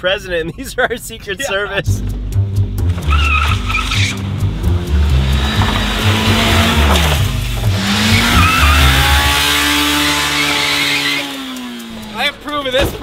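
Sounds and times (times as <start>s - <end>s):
truck engine revving: 2.0s - 13.0s
tire squeal: 3.0s - 4.4s, 7.8s - 11.3s.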